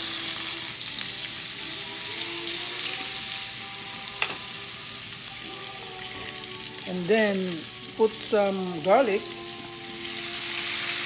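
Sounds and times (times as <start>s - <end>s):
butter sizzling in a frying pan: 0.0s - 11.0s
metal utensil clicking on pan: 4.2s - 4.4s.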